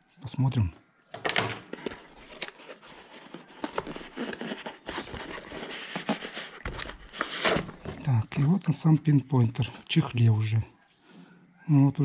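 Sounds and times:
cardboard rustling and scraping: 1.3s - 8.3s.

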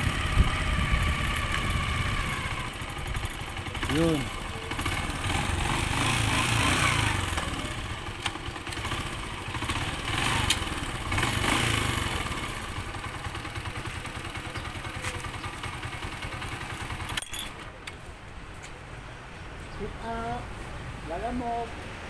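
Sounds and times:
wind noise: 0.0s - 3.3s
motorcycle engine running: 0.0s - 17.5s.

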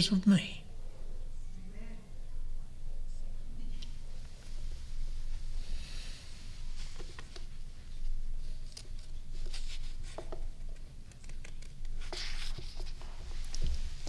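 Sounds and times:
book pages rustling and turning: 6.6s - 14.0s.

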